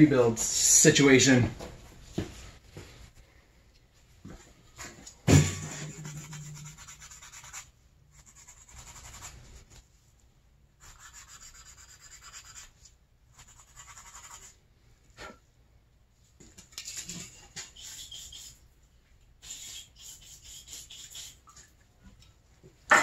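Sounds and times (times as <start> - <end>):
gloved hands scratchy rubbing: 5.9 - 9.8, 10.8 - 14.6, 17.6 - 18.6, 19.4 - 21.4.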